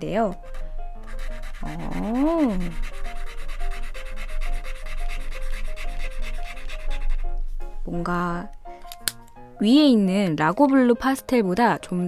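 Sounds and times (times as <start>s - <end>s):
marker scribbling on paper: 0.5s - 7.2s.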